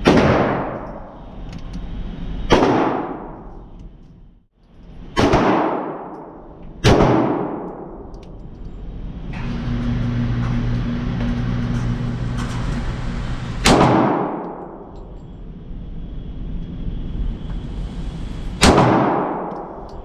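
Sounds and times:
pistol shots echoing indoors: 0.0s - 1.1s, 2.5s - 3.6s, 5.1s - 8.3s, 13.6s - 15.0s, 18.6s - 19.9s.

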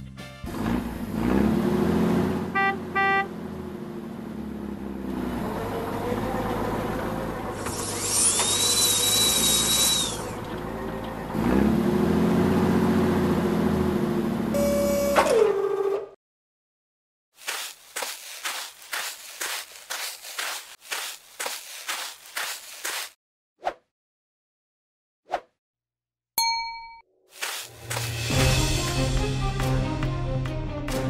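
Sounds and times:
heavy vehicle engine revving: 0.5s - 15.0s.

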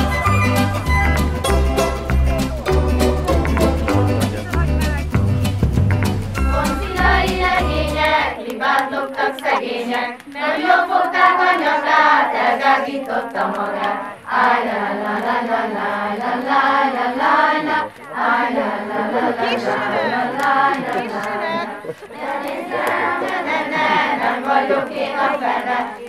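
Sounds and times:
music track with bass line: 0.0s - 8.3s
children singing together: 6.5s - 26.0s.

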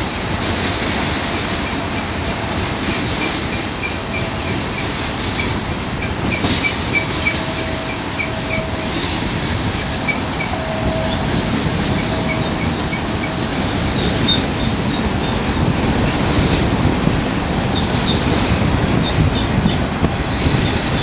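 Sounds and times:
freight train rolling past: 0.0s - 21.0s
wheel squeal: 3.2s - 16.6s, 17.5s - 21.0s
short high squeaks: 6.3s - 13.4s.

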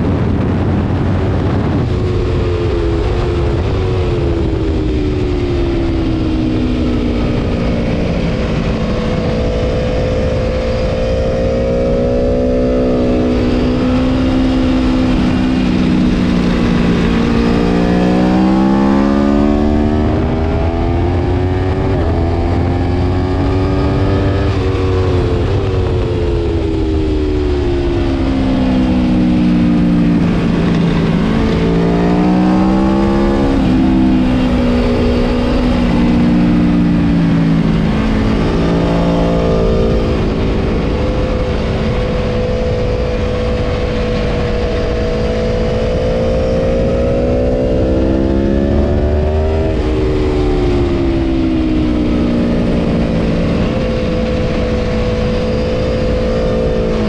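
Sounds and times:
motorcycle engine revving: 0.0s - 57.0s
wind rush on microphone: 0.0s - 57.0s.

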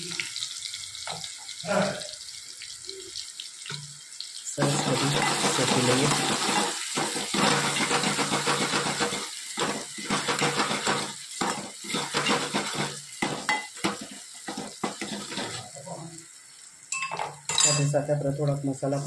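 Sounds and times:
metal spoon scraping a pot: 4.6s - 15.7s.

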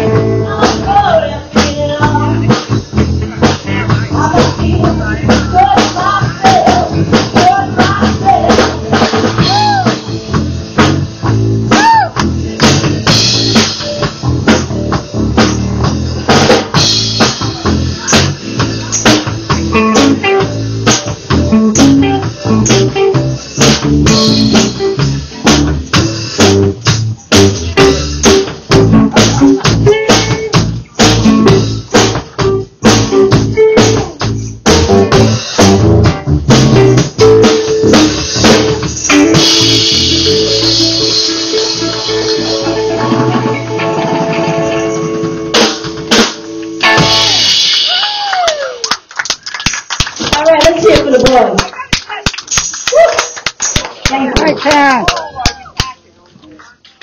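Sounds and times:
woman singing: 0.0s - 2.7s, 3.8s - 8.8s
rock band playing: 0.0s - 48.8s, 52.5s - 55.0s
drum hits: 1.6s - 48.1s.

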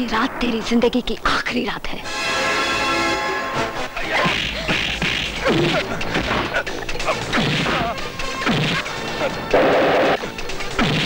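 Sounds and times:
loud crash: 0.0s - 6.6s
punch and kick hits: 4.2s - 6.6s, 7.2s - 9.0s, 10.8s - 11.0s.

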